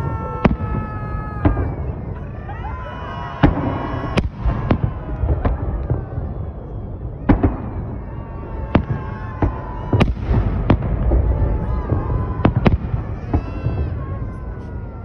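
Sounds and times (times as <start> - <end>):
firework bangs: 0.0 - 15.0
low rumble of fireworks: 0.0 - 15.0.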